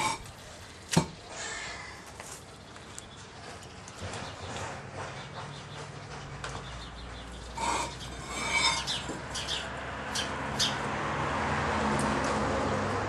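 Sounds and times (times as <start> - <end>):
pavers scraping and rubbing: 0.0 - 0.4, 7.6 - 9.5.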